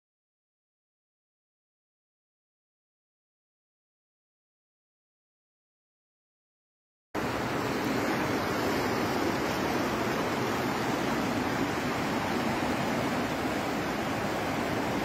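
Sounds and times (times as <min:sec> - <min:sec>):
river rushing: 0:07.2 - 0:15.0.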